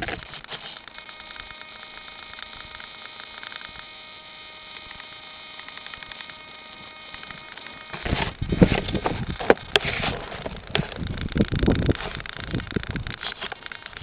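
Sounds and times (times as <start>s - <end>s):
faint electrical hum: 0.0s - 14.0s
fast faint ticking: 4.7s - 14.0s.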